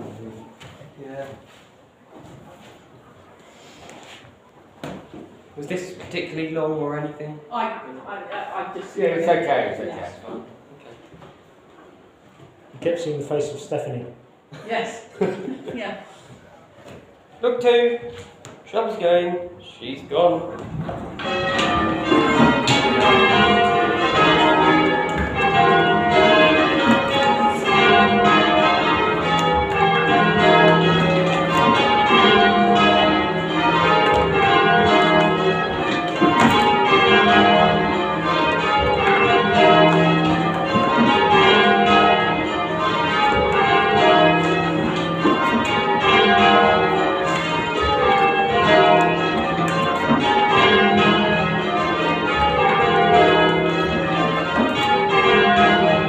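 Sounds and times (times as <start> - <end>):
church bells ringing: 5.6 - 10.2, 18.7 - 56.0.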